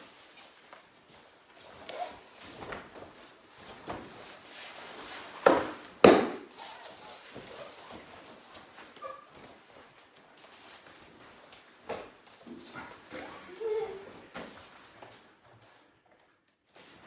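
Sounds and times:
body slapping onto mat: 5.4s - 6.5s.

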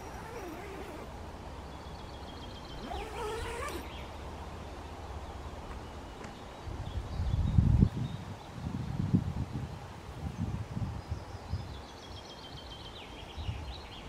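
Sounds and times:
dog whining: 0.0s - 1.2s, 2.8s - 4.0s.

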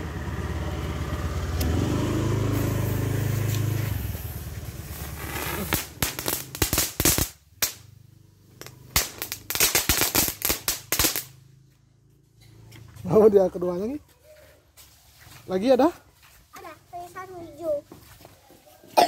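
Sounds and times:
low vehicle hum: 0.0s - 14.8s
firecrackers cracking and popping: 3.5s - 8.0s, 8.6s - 11.4s.

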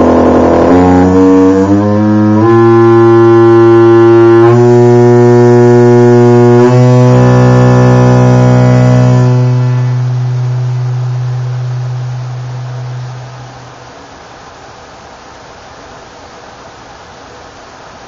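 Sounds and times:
loud low loudspeaker tone: 0.0s - 13.8s.

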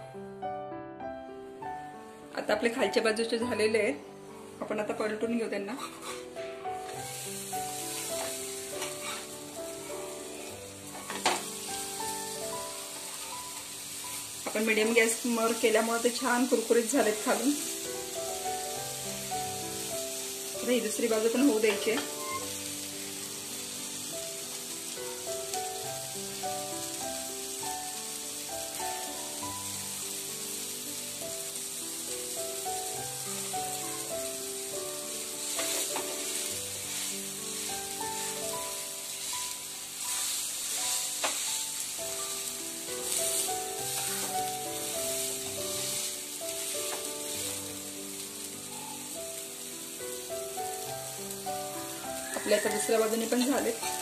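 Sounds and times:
soft instrumental music: 0.0s - 54.0s
food sizzling in a pan: 1.6s - 54.0s
metal spatula scraping pan: 5.8s - 6.3s, 8.0s - 9.4s.

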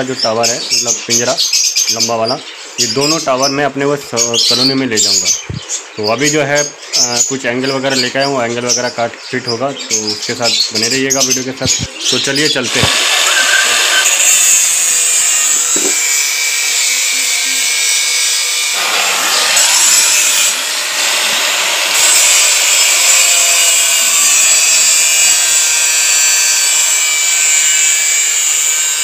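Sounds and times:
angle grinder cutting steel: 11.6s - 29.0s.

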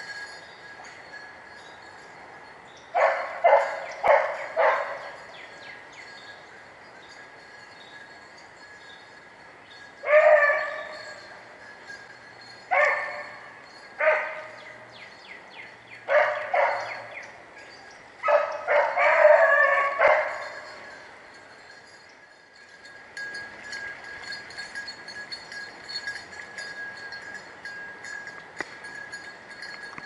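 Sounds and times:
hounds baying: 2.9s - 5.6s, 10.0s - 11.5s, 12.5s - 15.0s, 16.0s - 21.2s.

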